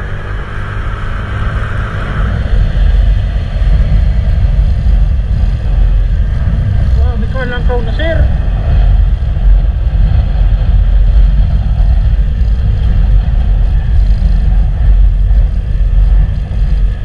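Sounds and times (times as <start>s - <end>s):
vehicle road and engine rumble: 0.0s - 17.0s
wind buffeting microphone: 0.0s - 17.0s.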